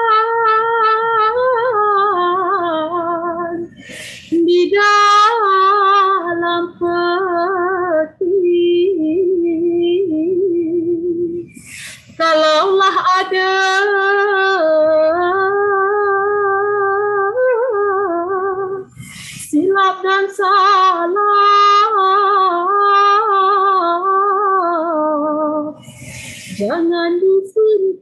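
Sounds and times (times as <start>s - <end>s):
woman singing solo: 0.0s - 28.0s
singer breathing in: 3.7s - 4.4s, 11.5s - 12.2s, 18.9s - 19.6s, 25.8s - 26.7s.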